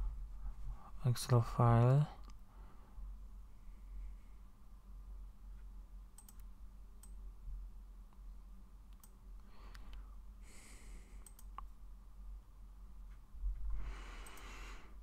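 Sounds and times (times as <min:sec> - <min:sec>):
low steady hum: 0:00.0 - 0:15.0
computer mouse clicks: 0:06.2 - 0:07.2, 0:08.9 - 0:10.0, 0:11.2 - 0:11.7, 0:14.2 - 0:14.5.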